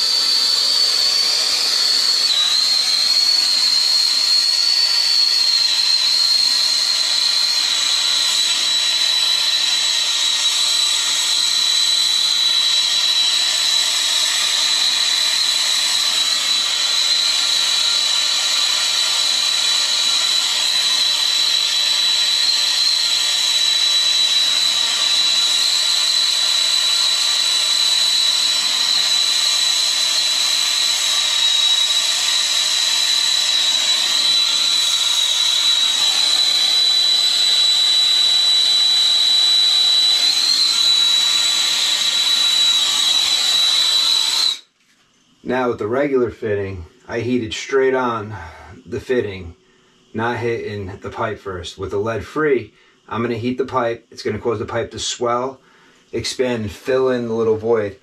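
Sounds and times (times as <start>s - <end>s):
soldering torch hissing and whistling: 0.0s - 44.8s.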